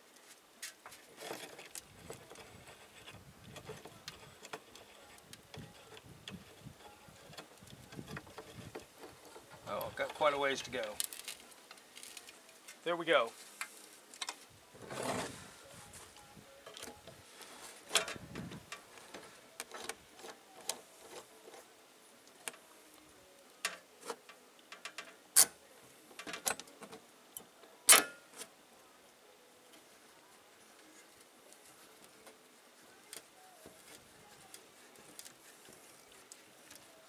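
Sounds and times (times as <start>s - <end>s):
sheet metal scraping on wood: 14.8s - 15.6s.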